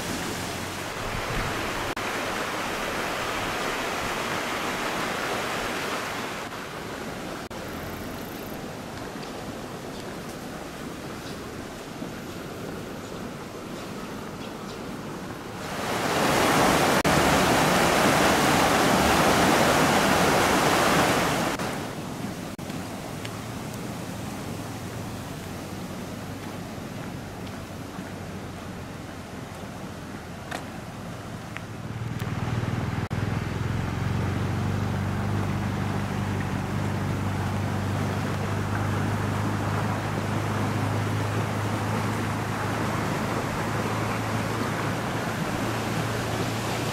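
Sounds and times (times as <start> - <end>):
constant hiss: 0.0 - 46.9
stream rushing in stone channel: 0.0 - 46.9
low motor drone: 31.8 - 46.8.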